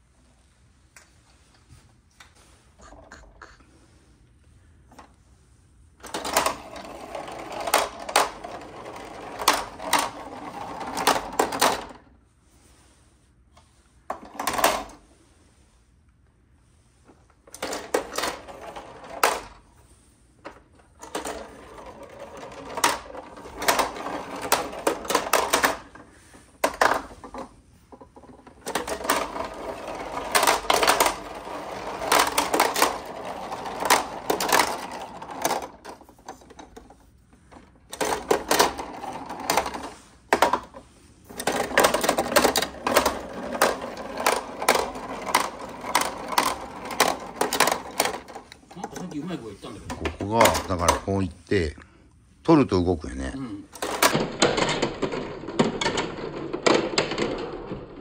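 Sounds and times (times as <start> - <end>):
plastic balls clattering down ramps: 6.0 - 12.1, 17.5 - 19.6, 20.5 - 26.0, 26.6 - 49.0, 49.9 - 51.1, 53.8 - 58.0.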